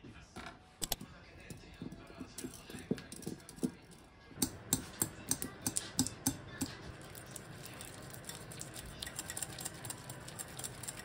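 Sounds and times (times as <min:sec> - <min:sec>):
whisk clicking against glass bowl: 0:07.8 - 0:11.0.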